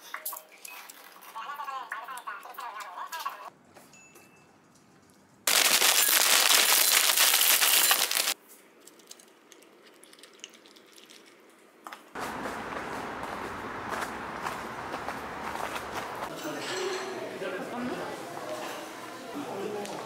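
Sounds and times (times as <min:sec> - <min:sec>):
cereal pouring into a bowl: 0:05.5 - 0:08.4
steady background noise: 0:11.3 - 0:20.0.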